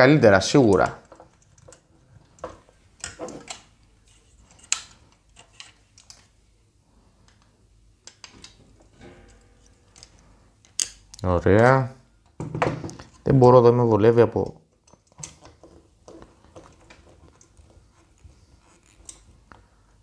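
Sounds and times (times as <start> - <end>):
small parts clicking and tapping: 0.6 - 3.7, 14.7 - 17.8.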